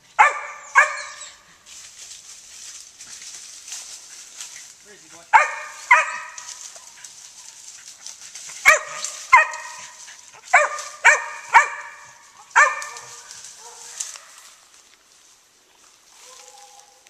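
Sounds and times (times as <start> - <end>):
dog barking: 0.2 - 1.4, 5.3 - 7.0, 8.6 - 14.4, 16.2 - 17.0.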